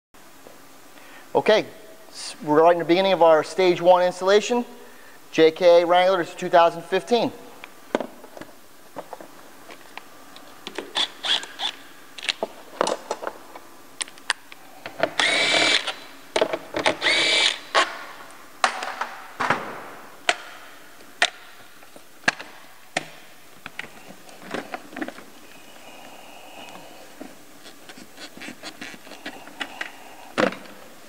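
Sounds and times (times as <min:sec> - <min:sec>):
cordless ratchet whirring: 0:15.2 - 0:16.0, 0:16.8 - 0:17.9.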